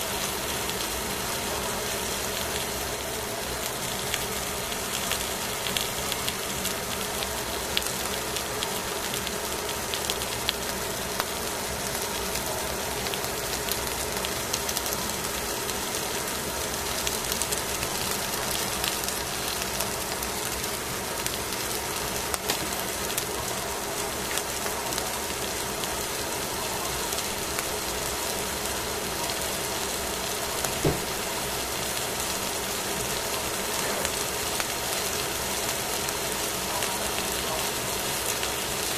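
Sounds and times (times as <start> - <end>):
fish sizzling in a pan: 0.0 - 38.9
knock: 30.8 - 31.1.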